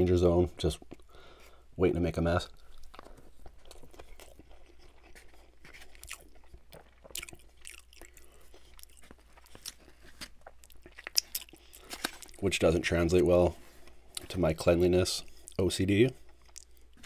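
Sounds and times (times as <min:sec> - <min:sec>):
chewing with mouth clicks: 0:02.5 - 0:12.4, 0:15.2 - 0:17.0.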